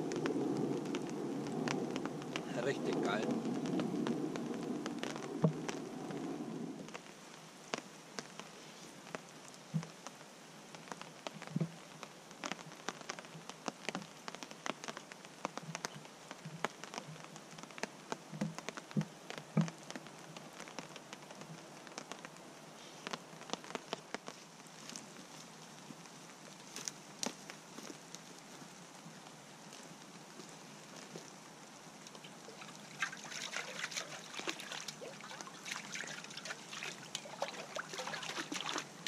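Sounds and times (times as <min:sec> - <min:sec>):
rustling noise: 0:00.0 - 0:10.0, 0:32.1 - 0:39.0
faint rain patter: 0:00.0 - 0:39.0
raindrops ticking on a tarp: 0:00.0 - 0:39.0.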